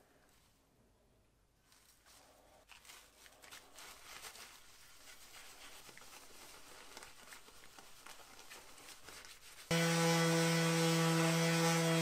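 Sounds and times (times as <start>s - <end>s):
cloth rubbing on metal: 1.6s - 9.7s
newspaper crackling: 2.7s - 9.7s.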